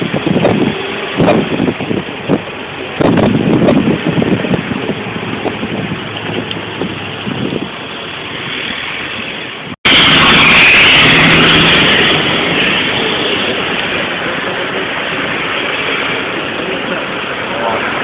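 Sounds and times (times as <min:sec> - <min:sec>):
highway traffic passing: 0:00.0 - 0:18.0
heavy truck passing close: 0:04.4 - 0:18.0.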